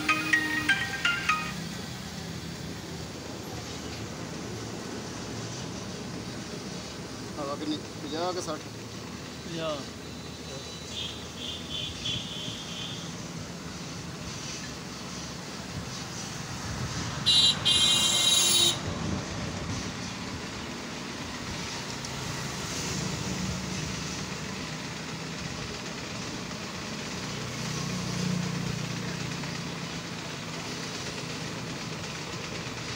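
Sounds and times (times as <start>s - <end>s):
air hose hissing: 12.6s - 17.4s.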